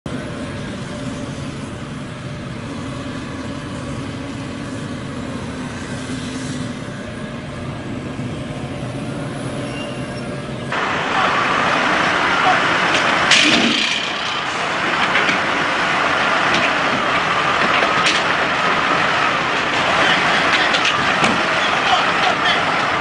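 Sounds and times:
excavator diesel engines running: 0.1s - 23.0s
loud rushing noise: 10.7s - 23.0s.

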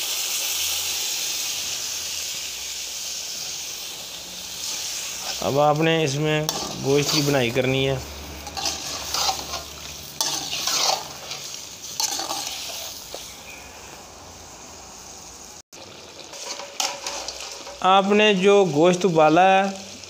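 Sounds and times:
oil sizzling: 0.0s - 20.0s
metal ladle scraping a pan: 4.6s - 5.6s, 6.3s - 7.6s, 8.3s - 13.9s, 16.2s - 17.9s.

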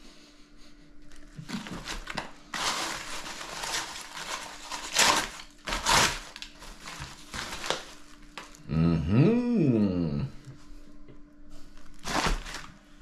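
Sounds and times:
aluminium foil crinkling: 1.1s - 8.7s, 11.6s - 13.0s.

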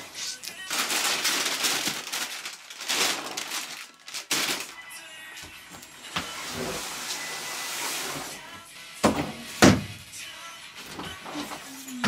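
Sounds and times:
soft background music: 2.7s - 12.0s.

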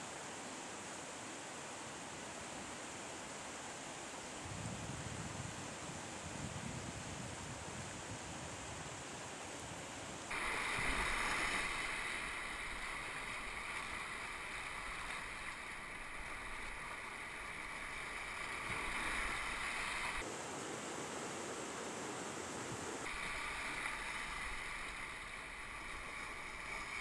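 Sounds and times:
rushing whitewater rapids: 10.3s - 27.0s.

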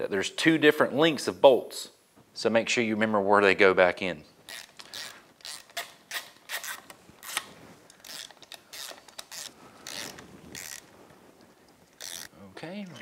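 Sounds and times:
ratchet wrench clicking: 12.0s - 12.3s.

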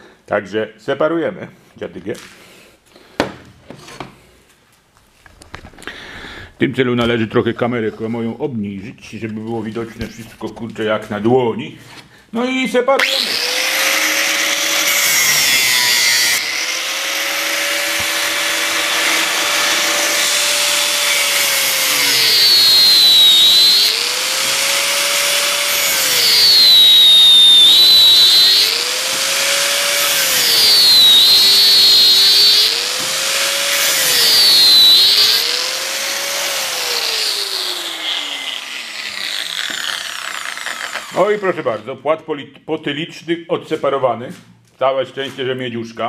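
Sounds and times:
disc screeching cutting copper: 13.0s - 41.4s
angle grinder whining: 13.0s - 41.6s.

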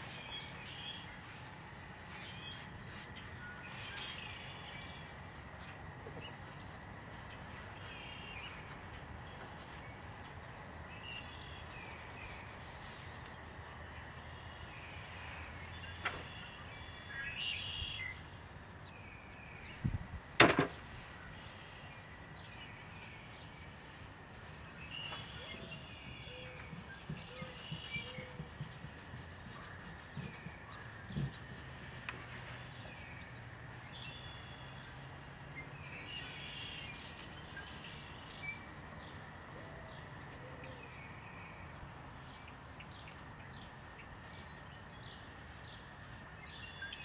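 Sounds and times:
birds chirping: 0.0s - 47.0s
steady low background noise: 0.0s - 47.0s.

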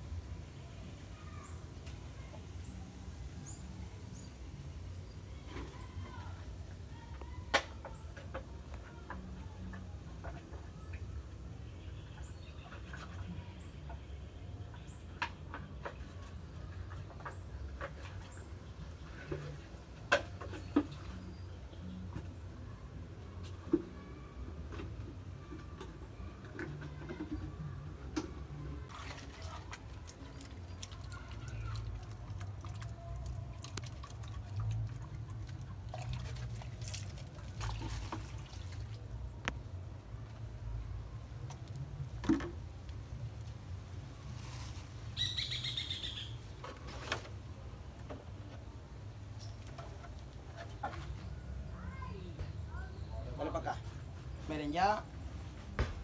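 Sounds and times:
water pouring and splashing: 28.9s - 40.6s
high bird chirp: 45.2s - 46.4s.

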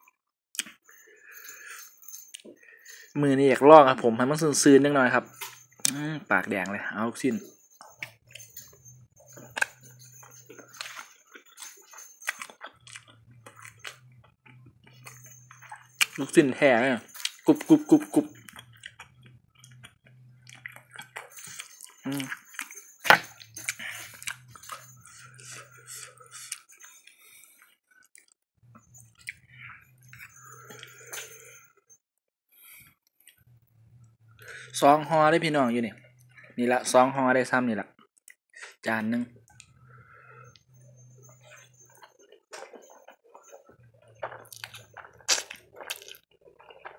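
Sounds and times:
person chewing noodles: 7.8s - 16.4s, 17.0s - 31.7s, 39.4s - 46.9s.

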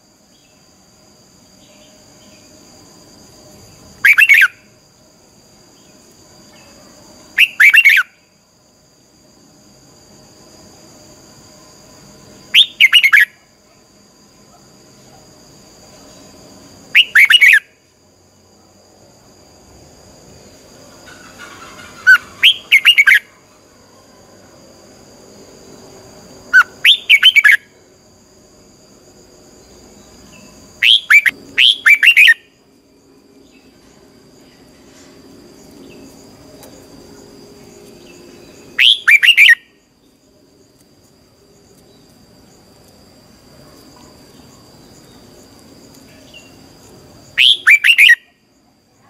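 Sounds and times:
bulbul whistled song: 4.0s - 4.6s, 7.4s - 8.1s, 12.6s - 13.3s, 16.9s - 17.7s, 22.1s - 23.3s, 26.6s - 27.6s, 30.8s - 32.5s, 38.8s - 39.7s, 47.4s - 48.3s.

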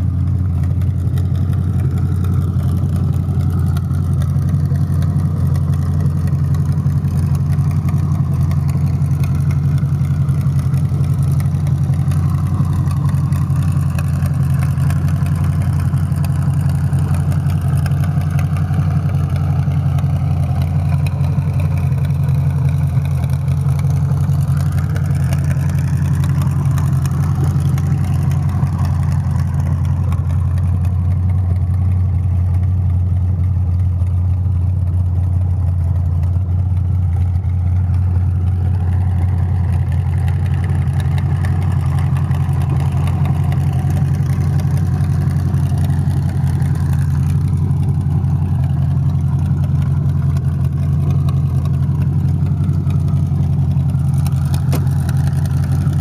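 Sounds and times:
engine idling: 0.0s - 56.0s.

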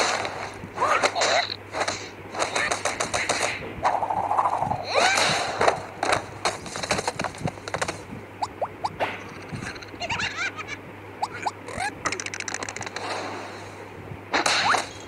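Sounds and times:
rattling cartoon clicks and hits: 11.7s - 13.1s.

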